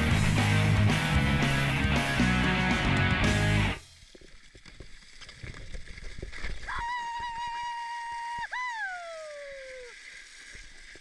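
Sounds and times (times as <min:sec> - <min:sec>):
skates clicking and scraping ice: 0:09.8 - 0:11.0.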